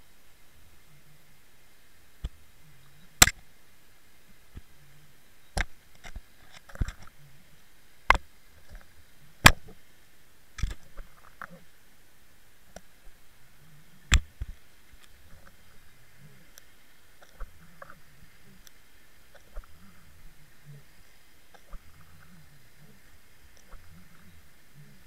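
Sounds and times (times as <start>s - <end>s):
faint steady hiss: 0.0s - 25.0s.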